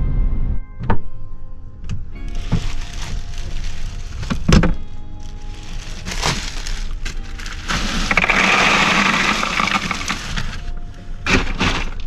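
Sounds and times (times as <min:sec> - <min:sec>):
ice cubes clattering into cooler: 0:02.3 - 0:12.0
ice knocking on plastic cooler: 0:11.3 - 0:12.0.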